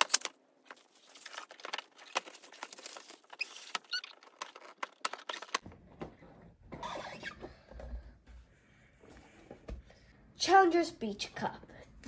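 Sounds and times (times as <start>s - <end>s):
plastic shrink-wrap crinkling: 0.0s - 5.6s.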